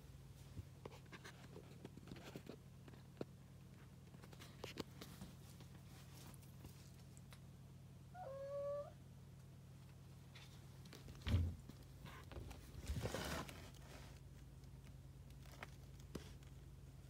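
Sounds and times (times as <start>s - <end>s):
cat meowing: 8.1s - 9.0s
scraping rustle: 12.0s - 14.4s.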